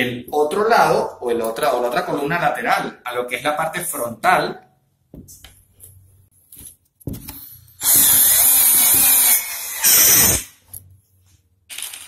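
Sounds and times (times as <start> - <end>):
cordless drill driving screw: 7.8 - 10.5.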